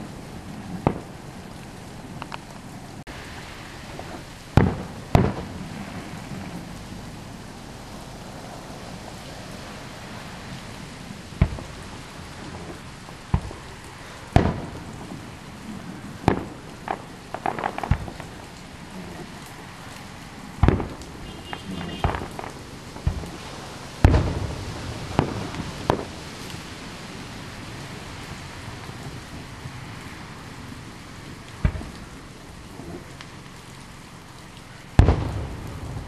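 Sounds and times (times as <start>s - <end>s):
fireworks booming: 0.0s - 2.4s, 3.0s - 7.2s, 11.4s - 19.4s, 20.5s - 26.4s, 31.6s - 33.2s, 34.9s - 36.0s
crackling fireworks pops: 0.0s - 6.8s, 10.4s - 30.2s, 31.3s - 36.0s
rain hissing: 0.0s - 36.0s.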